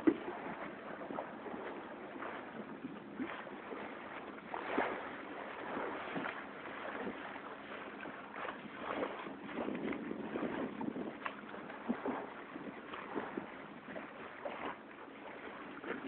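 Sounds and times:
water splashing along boat hull: 0.0s - 16.0s.

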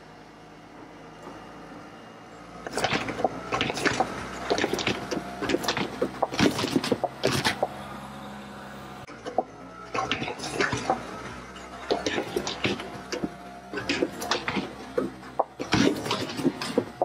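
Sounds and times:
van engine running: 0.0s - 17.0s
bollards knocking and scraping: 2.6s - 7.9s, 9.2s - 17.0s.

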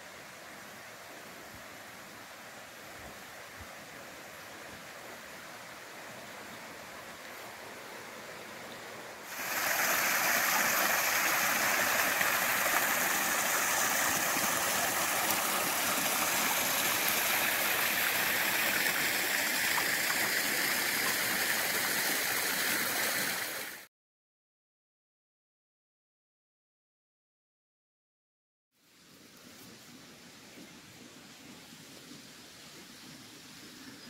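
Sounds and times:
water gushing into pond: 9.2s - 23.9s.

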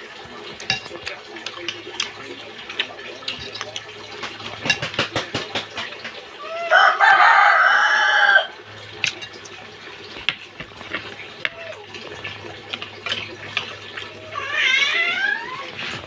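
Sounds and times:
rooster crowing: 6.4s - 8.6s.

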